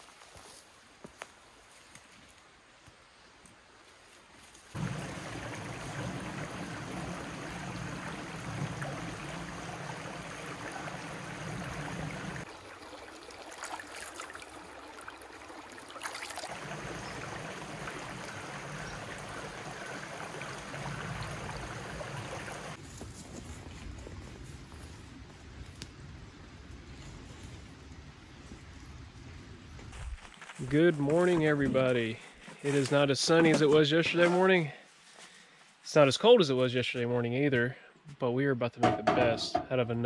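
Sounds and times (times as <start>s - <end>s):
rocky creek running: 4.4s - 22.8s
hands splashing in water: 13.3s - 16.7s.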